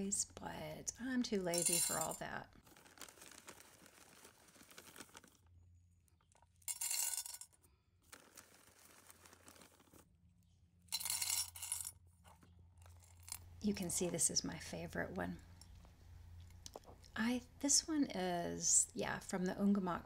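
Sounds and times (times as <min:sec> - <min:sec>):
pebbles clattering into ceramic pot: 0:01.5 - 0:05.4, 0:06.6 - 0:10.1, 0:10.9 - 0:13.4.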